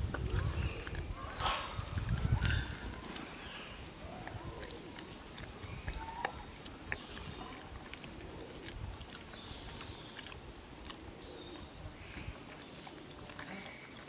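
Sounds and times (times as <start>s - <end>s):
pig licking wire mesh wetly: 0.0s - 14.0s.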